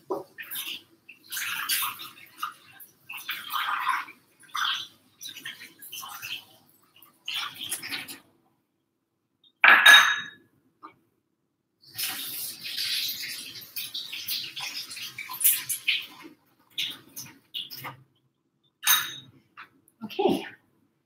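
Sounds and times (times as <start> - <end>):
tap water running into sink: 12.0 - 18.0.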